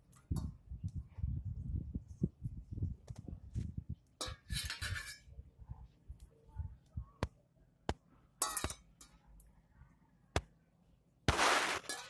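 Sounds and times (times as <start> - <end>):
loud rough burst of noise: 11.3 - 11.9.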